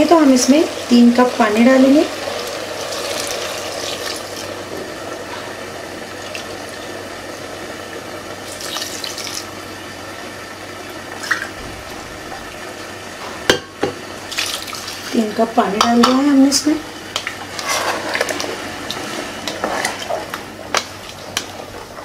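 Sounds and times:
water pouring into pot: 2.1s - 4.6s, 8.4s - 9.5s, 14.3s - 15.2s.

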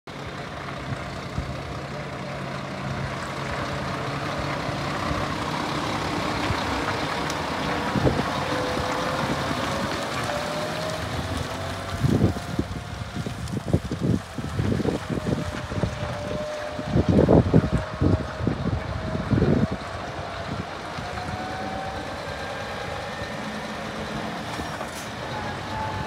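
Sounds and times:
diesel truck engine: 0.0s - 26.0s.

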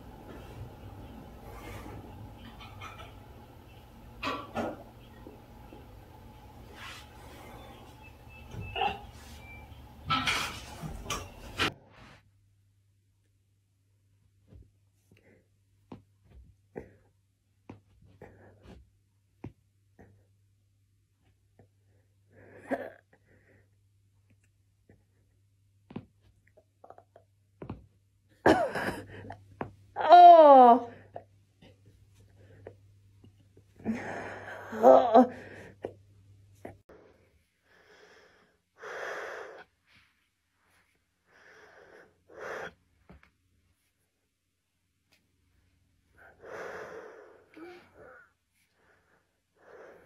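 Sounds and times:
person breathing heavily: 36.9s - 39.7s, 46.1s - 50.0s.

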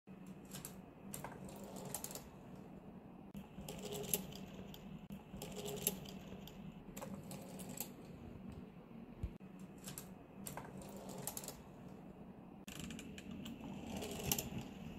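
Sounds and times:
faint steady hum: 0.1s - 14.9s
plastic toy parts clicking and rattling: 0.2s - 2.3s, 3.6s - 8.0s, 12.7s - 14.9s.

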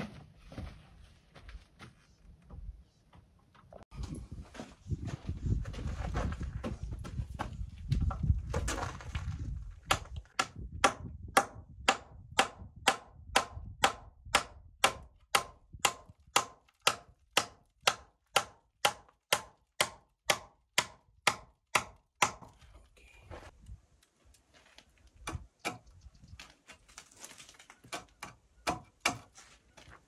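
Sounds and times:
scuffing handling noise: 0.0s - 9.5s
hammer driving a nail: 9.9s - 22.5s.

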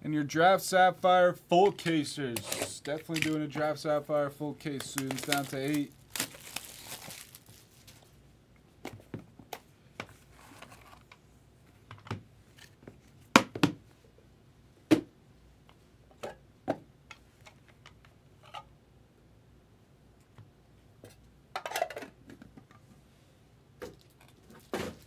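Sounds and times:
cards riffled: 4.7s - 7.5s.

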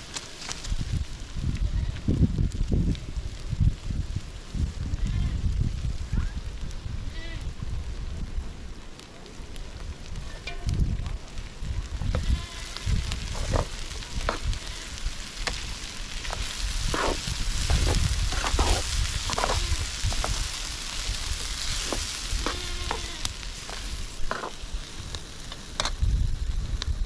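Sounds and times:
food sizzling in a frying pan: 10.1s - 27.0s.

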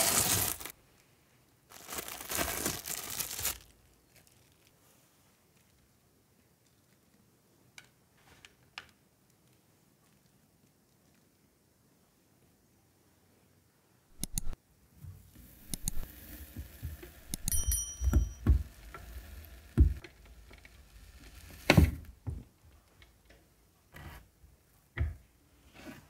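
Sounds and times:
metallic ring of knife blade: 17.3s - 18.4s.

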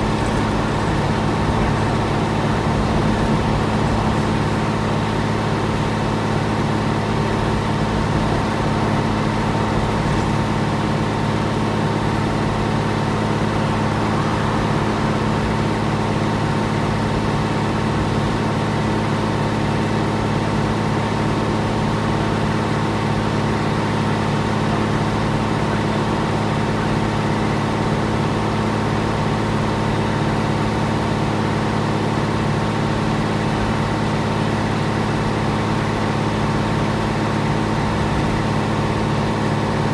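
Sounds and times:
bus diesel engine idling: 0.0s - 39.9s.

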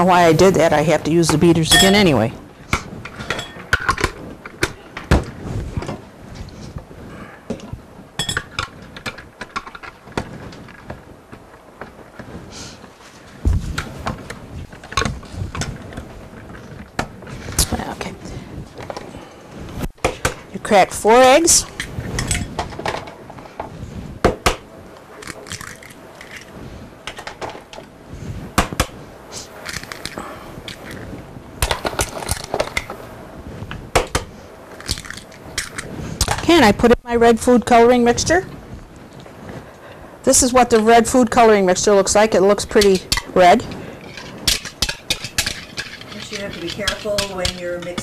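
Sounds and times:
kitchen utensils clinking: 1.3s - 2.3s, 3.1s - 4.1s, 42.6s - 48.0s.

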